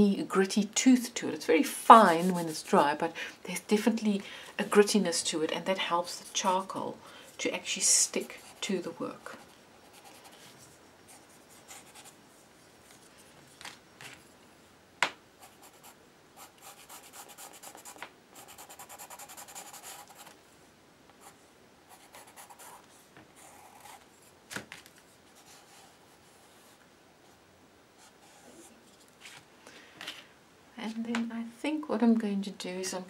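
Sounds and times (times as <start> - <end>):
charcoal pencil scratching paper: 15.4 - 20.3, 21.2 - 24.0.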